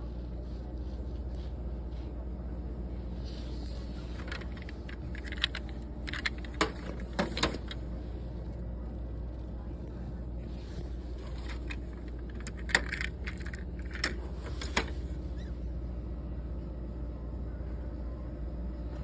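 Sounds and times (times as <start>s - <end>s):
steady low hum: 0.0s - 19.0s
metal toy car clicking on plastic: 11.4s - 14.9s.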